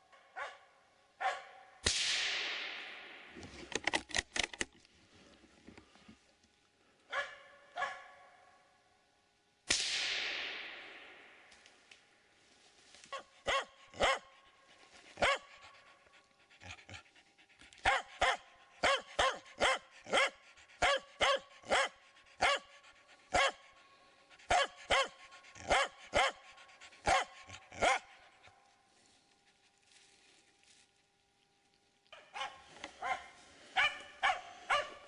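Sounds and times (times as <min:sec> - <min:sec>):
dog barking: 0:00.3 - 0:01.8, 0:07.1 - 0:08.4, 0:13.1 - 0:14.4, 0:15.2 - 0:15.7, 0:17.8 - 0:23.8, 0:24.4 - 0:28.2, 0:32.2 - 0:35.0.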